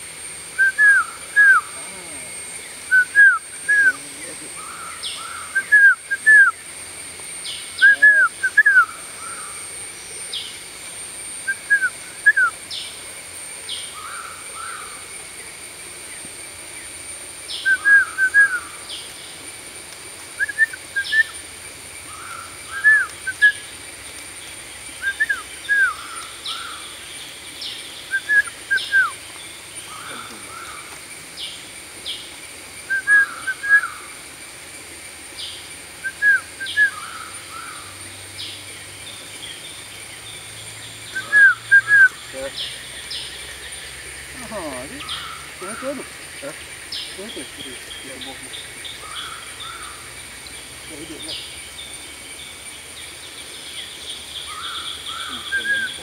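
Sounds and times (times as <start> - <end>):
bird whistled calls: 0.6 - 1.8, 2.8 - 4.0, 4.6 - 6.6, 7.4 - 9.6, 11.4 - 12.9, 17.5 - 19.0, 20.4 - 21.4, 22.2 - 23.7, 25.0 - 26.9, 28.0 - 29.2, 32.9 - 34.1, 36.0 - 38.5, 41.0 - 43.7, 54.4 - 56.0.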